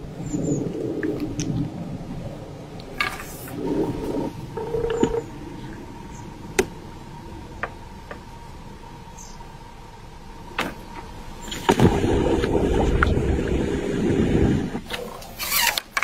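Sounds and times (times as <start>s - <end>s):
soft rustling and scraping: 2.9s - 5.2s
faint steady high tone: 4.4s - 6.4s.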